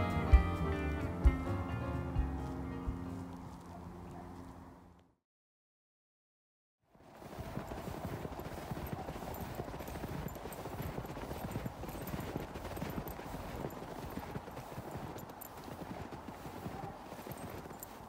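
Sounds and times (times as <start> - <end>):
footsteps crunching through snow: 6.9 - 18.0.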